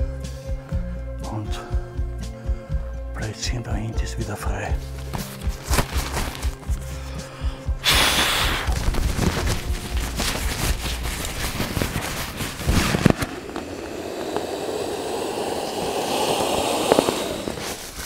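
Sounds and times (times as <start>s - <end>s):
nylon fabric crinkling and rustling: 4.9s - 7.0s, 8.6s - 14.1s
air rushing from sack: 7.8s - 18.0s.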